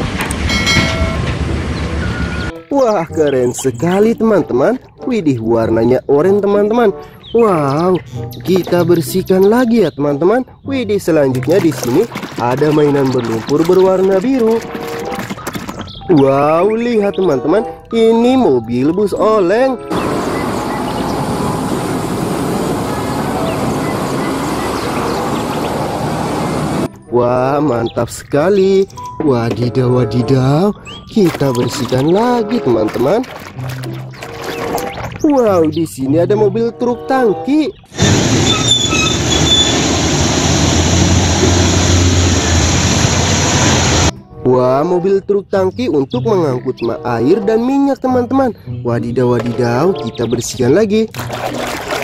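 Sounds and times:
truck engine: 0.0 - 2.6, 19.8 - 26.9, 37.9 - 44.1
heavy traffic passing: 0.0 - 2.7, 19.8 - 27.0, 37.9 - 44.1
tyres hissing on wet road: 19.9 - 26.9, 37.9 - 44.1
short high squeaks: 38.0 - 39.9.

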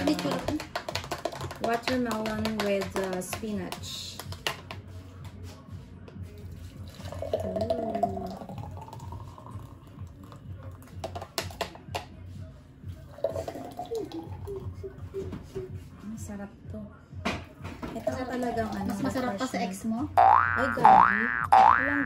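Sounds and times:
thick drink pouring into glass: 6.9 - 11.3, 13.1 - 14.6.

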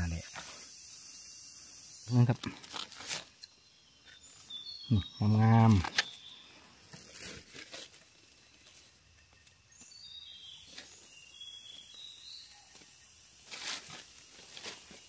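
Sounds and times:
rustling dry leaves: 2.2 - 3.4, 6.8 - 9.5, 12.7 - 15.0.

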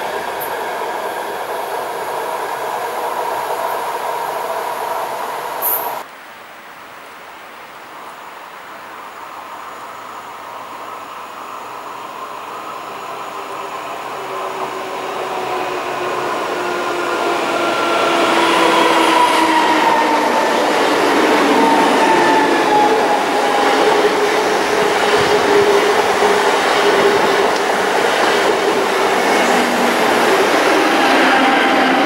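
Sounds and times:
train whining tones: 10.9 - 32.0
train wheels rumbling on rails: 11.2 - 32.0.

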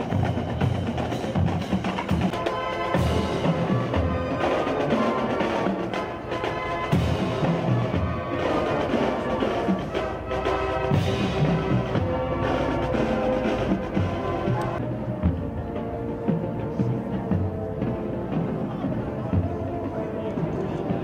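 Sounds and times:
marching band playing: 0.0 - 21.0.

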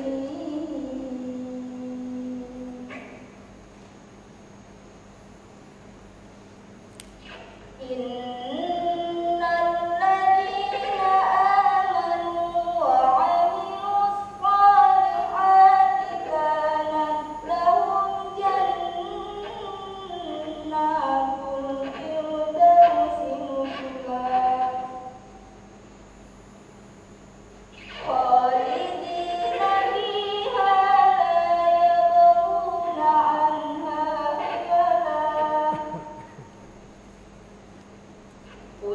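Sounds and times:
woman singing unaccompanied: 0.0 - 2.9, 7.8 - 25.2, 27.9 - 36.3.

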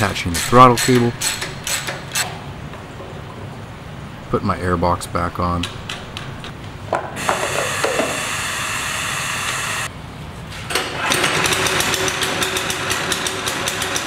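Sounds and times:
steady whir: 7.2 - 9.9.

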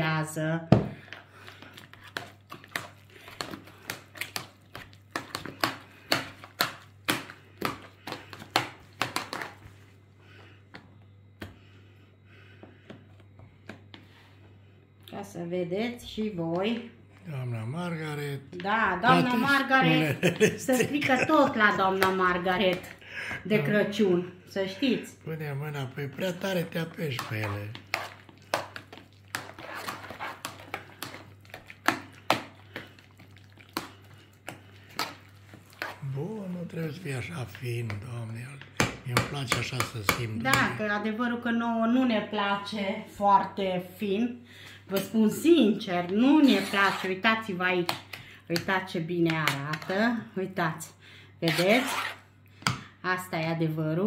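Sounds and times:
wet squelching mash: 1.0 - 9.9, 26.2 - 38.6.

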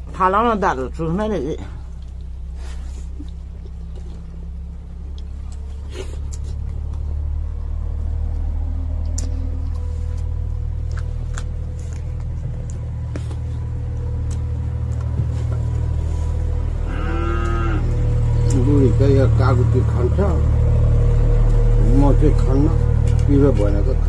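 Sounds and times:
steady low rumble: 0.0 - 24.0
clicks and smacks of eating: 5.1 - 7.2, 8.1 - 15.8.

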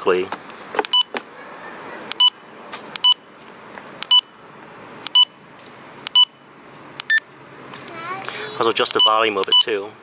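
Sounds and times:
walkie-talkie beeps: 9.0 - 9.7.

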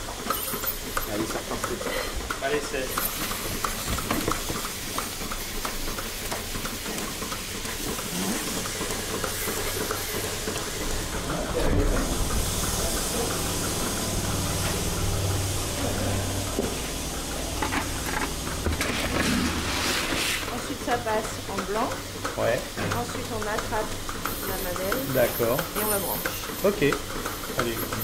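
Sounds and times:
milking machine vacuum hiss: 0.3 - 28.0
low hum: 11.3 - 20.7.

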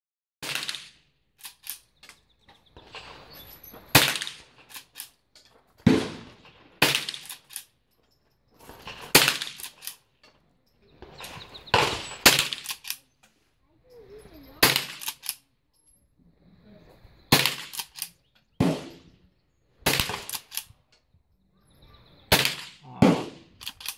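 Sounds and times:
rifle shots: 0.4 - 1.8, 3.9 - 5.0, 5.8 - 7.6, 8.8 - 10.0, 11.1 - 13.0, 14.6 - 15.4, 17.3 - 19.2, 19.8 - 20.7, 22.3 - 23.9
rifle action clicks: 1.4 - 2.2, 9.2 - 10.0, 11.2 - 13.0, 14.6 - 15.4, 17.4 - 18.2, 20.0 - 20.8, 23.6 - 23.9.

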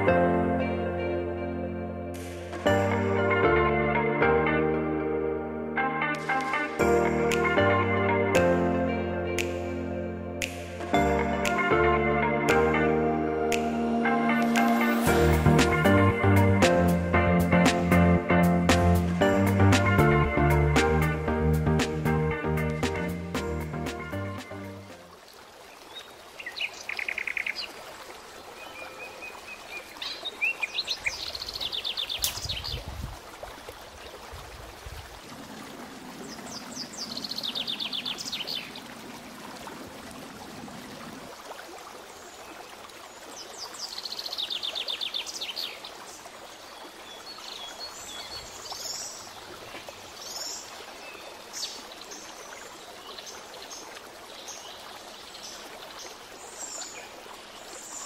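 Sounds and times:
songbirds trilling: 36.2 - 38.9.

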